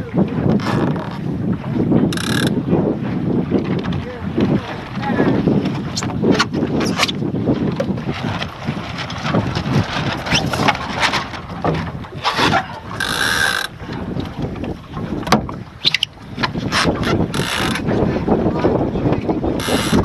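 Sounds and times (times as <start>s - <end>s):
water rushing along hull: 0.0s - 20.0s
wind on microphone: 0.0s - 20.0s
ropes and fittings knocking: 2.1s - 2.6s, 10.4s - 17.9s.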